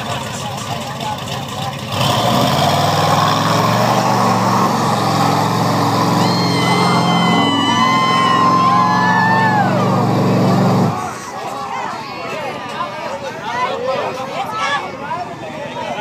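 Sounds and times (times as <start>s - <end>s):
truck engine revving hard: 1.8s - 11.3s
high whistles: 6.0s - 9.9s.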